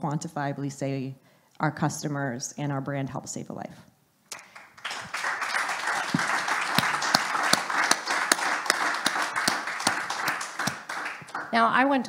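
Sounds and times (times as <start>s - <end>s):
audience applauding: 4.3s - 11.6s.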